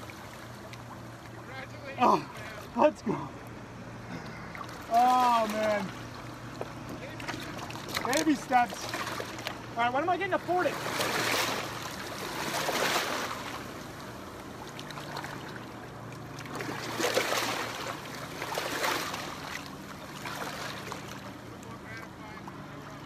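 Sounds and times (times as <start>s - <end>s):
boat motor humming: 0.0s - 23.0s
small waves washing over rocks: 10.6s - 13.7s, 16.4s - 21.2s.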